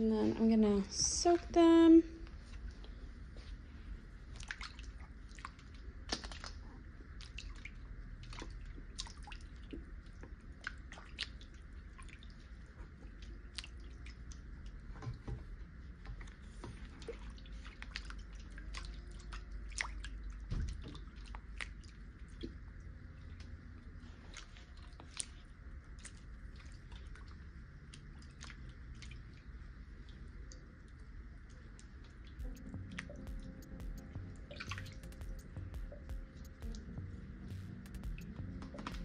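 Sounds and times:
water drips and splashes: 4.3 - 15.3, 16.0 - 23.5, 24.3 - 39.0
steady low hum: 32.4 - 39.0.

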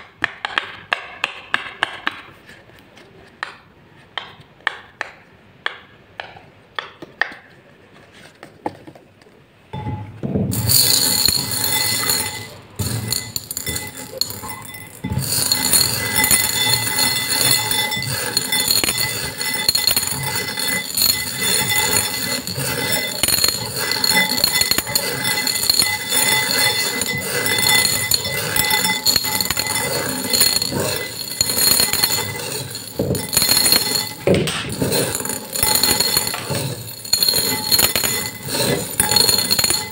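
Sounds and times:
beads clinking in glass bowl: 9.8 - 39.9.

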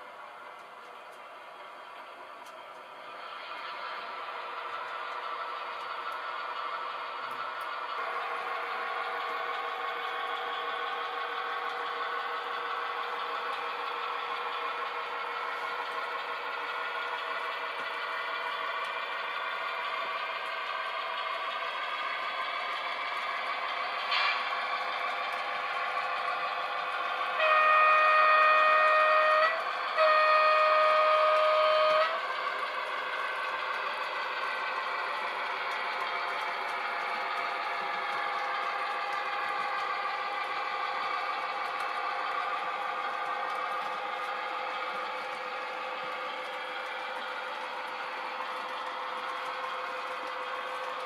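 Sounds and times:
model trains running: 0.0 - 51.0
wheels rattling on rails: 0.0 - 51.0
model locomotive horn blasts: 27.3 - 32.3.

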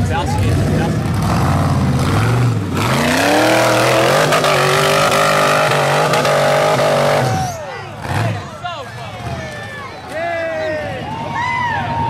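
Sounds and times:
engine revving hard: 0.4 - 8.5.

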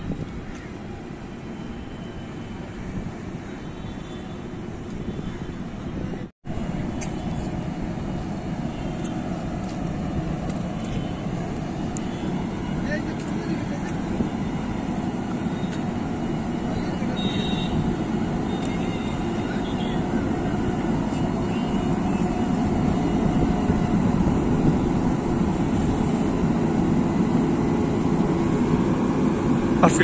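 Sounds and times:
locomotive low rumble: 6.2 - 30.0.

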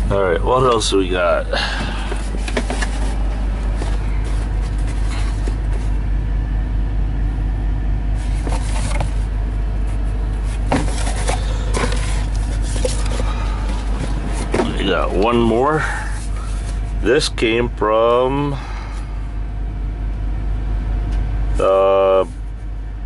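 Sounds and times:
diesel engine idling: 0.0 - 23.0
cardboard box rustling: 2.1 - 6.0, 8.2 - 17.0.

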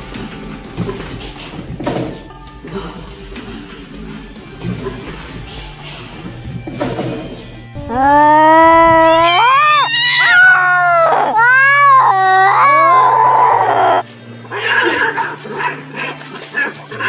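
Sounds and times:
cats wrestling: 0.0 - 17.0
cat meowing loudly: 7.9 - 14.0.

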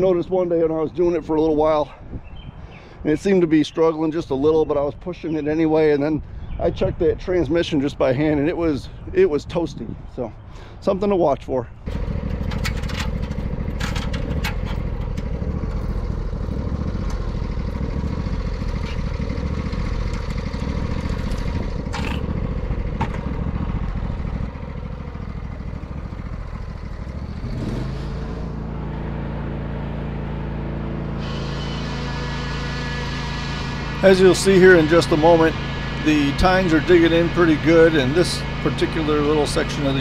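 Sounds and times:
lawn tractor engine rumbling: 2.7 - 40.0
clicks and rattles: 11.9 - 15.4.

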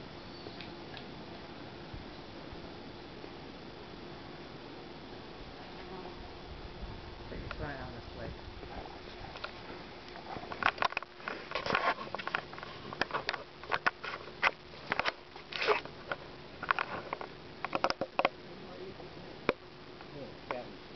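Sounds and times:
animals nibbling and scratching gravel: 8.7 - 17.8.

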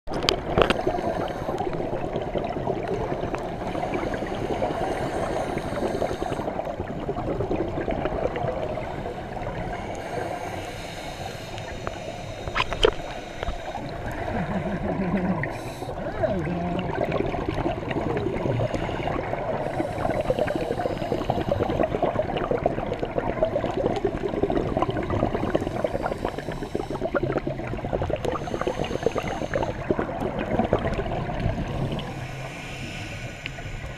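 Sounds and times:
underwater bubbles gurgling: 0.1 - 33.9
regulator hiss: 8.8 - 14.2, 15.4 - 16.0, 28.3 - 29.9, 31.7 - 33.9.

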